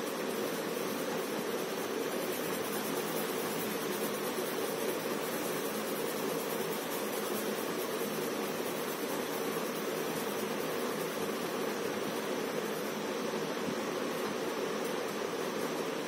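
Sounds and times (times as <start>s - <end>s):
steady background hiss: 0.0s - 16.0s.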